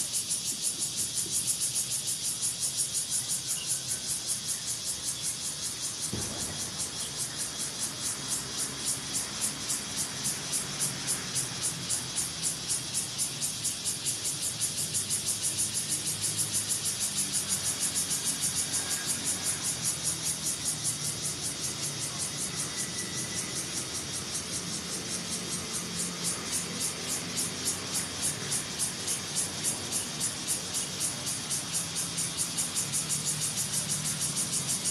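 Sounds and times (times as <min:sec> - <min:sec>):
insects buzzing in pulses: 0:00.0 - 0:34.9.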